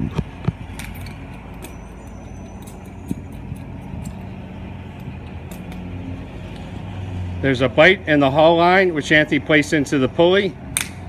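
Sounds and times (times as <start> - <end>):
low mechanical hum: 0.0 - 8.1
metallic clicks and clinks: 0.7 - 5.9.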